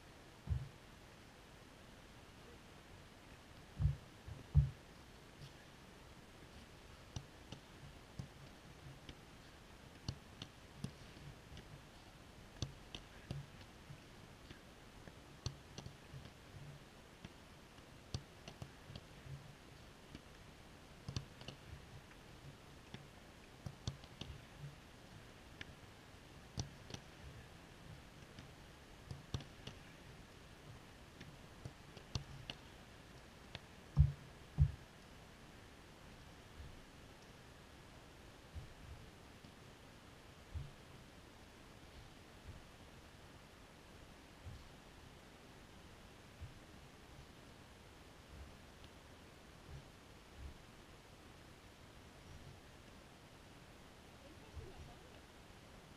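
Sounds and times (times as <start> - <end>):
faint clicks and taps: 3.2 - 5.7, 6.5 - 20.4, 21.0 - 25.8, 26.5 - 35.1, 38.6 - 39.6, 40.5 - 40.8.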